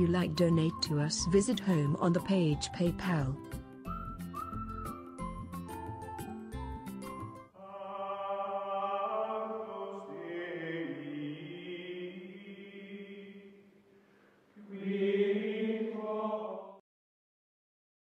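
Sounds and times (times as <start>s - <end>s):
choral voices holding chords: 7.5s - 13.7s, 14.6s - 16.8s.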